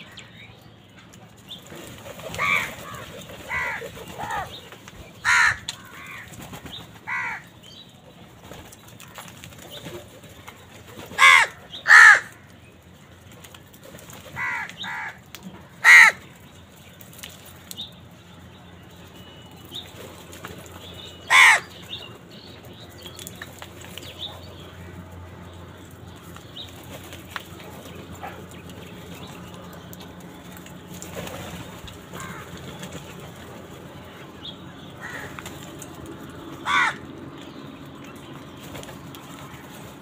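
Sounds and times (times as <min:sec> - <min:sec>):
crows cawing: 0:02.4 - 0:04.5, 0:05.2 - 0:06.4, 0:07.1 - 0:07.5, 0:11.2 - 0:12.5, 0:14.3 - 0:15.2, 0:15.8 - 0:16.3, 0:21.3 - 0:21.8, 0:32.1 - 0:32.7, 0:35.0 - 0:35.4, 0:36.6 - 0:37.2.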